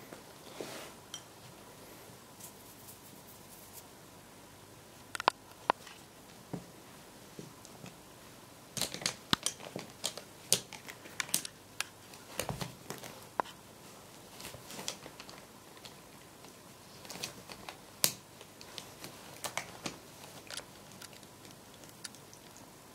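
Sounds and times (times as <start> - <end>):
foil-wrapped pencils clicking and crinkling: 14.4 - 16.0, 16.9 - 22.3.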